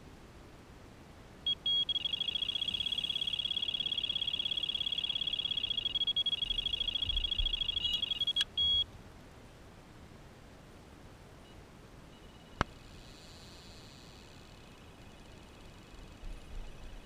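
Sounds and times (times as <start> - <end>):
high-pitched electronic beeps: 1.5 - 8.9.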